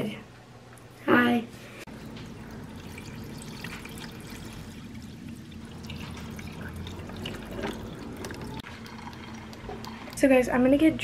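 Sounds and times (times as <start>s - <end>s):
water pouring from carafe: 1.9s - 10.2s.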